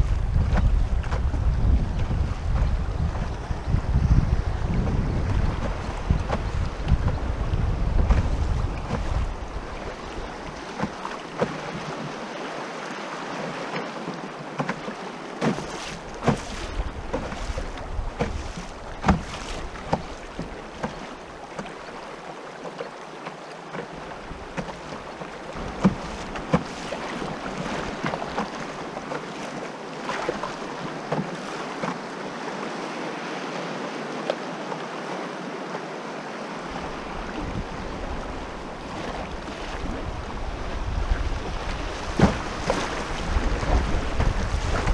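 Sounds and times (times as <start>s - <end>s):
wind buffeting microphone: 0.0s - 10.9s, 16.0s - 21.0s, 36.6s - 44.9s
river current rushing: 1.4s - 44.9s.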